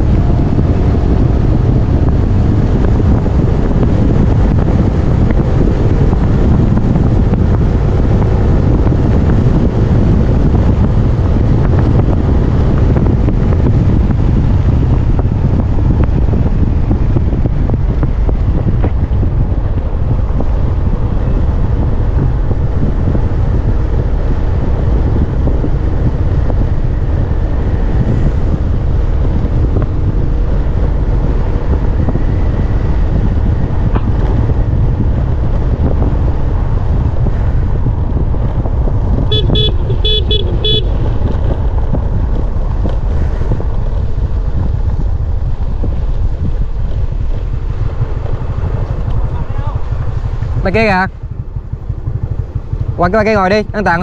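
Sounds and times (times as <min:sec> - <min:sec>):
wind buffeting microphone: 0:00.0 - 0:54.0
scooter engine running: 0:38.2 - 0:53.0.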